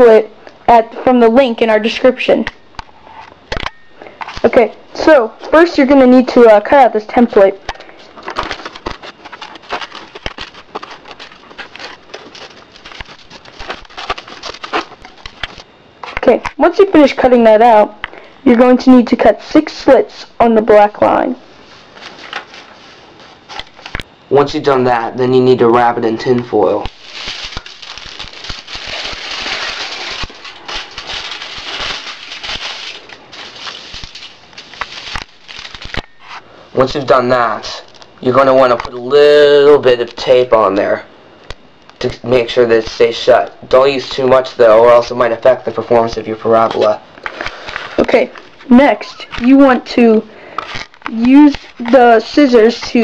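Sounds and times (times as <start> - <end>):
aluminium foil crinkling: 7.0 - 16.4, 26.5 - 39.0, 41.9 - 53.0
paper rustling: 7.9 - 16.4, 26.8 - 36.4, 46.6 - 53.0
scissors snipping paper: 8.6 - 15.6.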